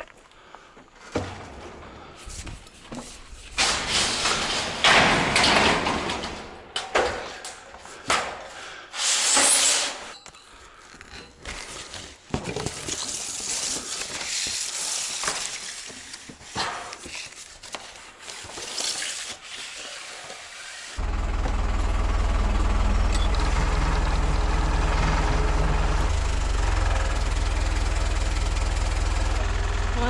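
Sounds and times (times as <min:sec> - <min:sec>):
sharp knocks and rattles: 0:03.6 - 0:07.4.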